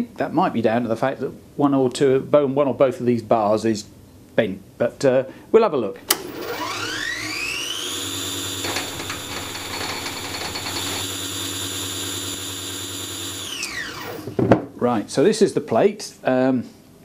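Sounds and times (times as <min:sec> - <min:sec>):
electric motor whine: 0:06.1 - 0:14.4.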